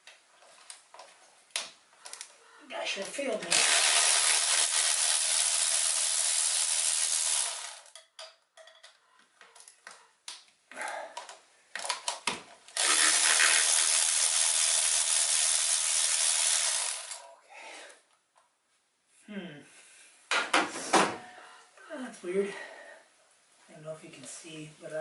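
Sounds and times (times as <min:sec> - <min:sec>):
power ratchet running: 0:03.5 - 0:07.9, 0:12.8 - 0:17.3.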